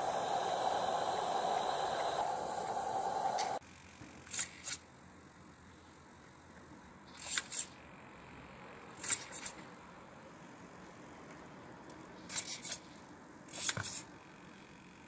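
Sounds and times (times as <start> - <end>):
steam hissing: 0.0 - 3.6.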